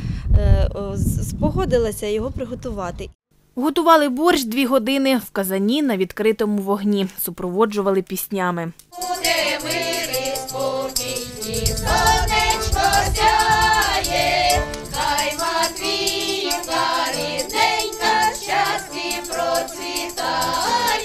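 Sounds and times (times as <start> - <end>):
women's choir singing folk song: 8.9 - 21.0.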